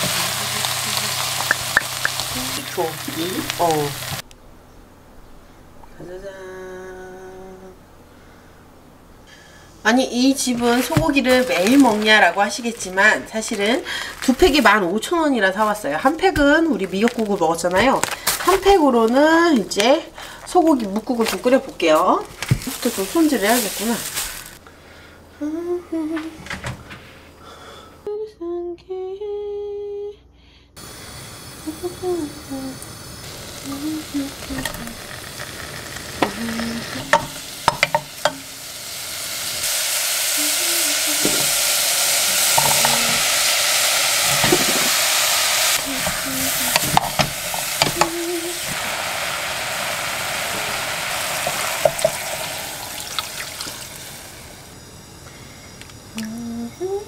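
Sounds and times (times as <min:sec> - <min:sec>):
beef sizzling in oil: 0:00.0 - 0:04.2, 0:20.8 - 0:24.6, 0:30.8 - 0:54.7.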